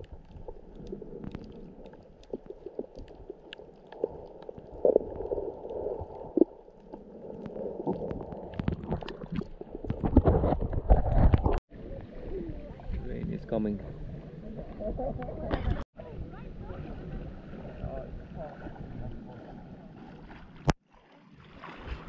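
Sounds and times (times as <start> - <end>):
sharp underwater clicks and pops: 0.0 - 11.6
low underwater rumble: 0.0 - 20.8.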